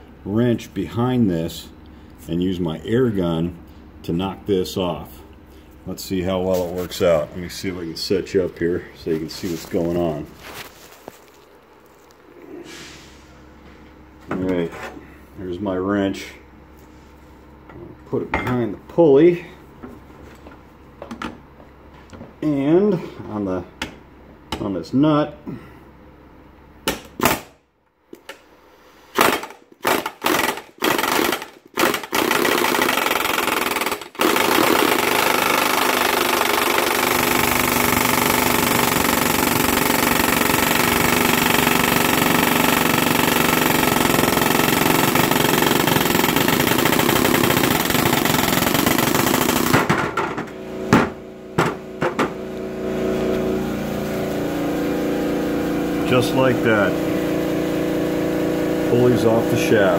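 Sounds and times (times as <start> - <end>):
pneumatic impact wrench hammering: 26.9 - 27.6, 29.1 - 52.4.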